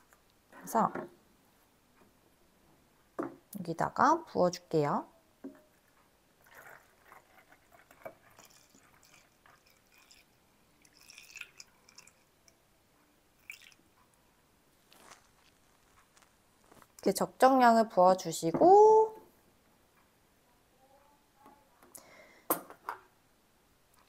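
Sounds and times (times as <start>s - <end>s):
liquid trickling with drips: 6.4s - 12.6s, 13.4s - 13.8s.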